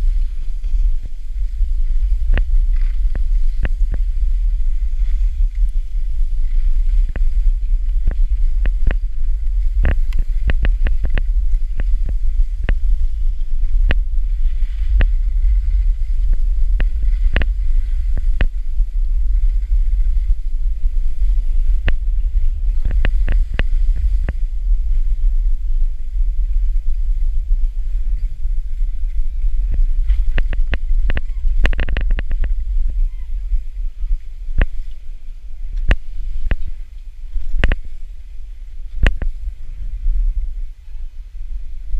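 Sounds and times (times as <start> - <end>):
skis hissing over snow: 0.0 - 31.7
wind buffeting microphone: 0.0 - 41.9.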